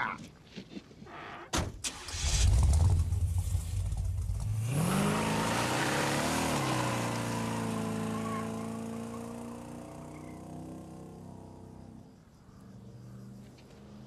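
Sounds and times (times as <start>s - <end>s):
car engine revving: 1.9s - 12.1s.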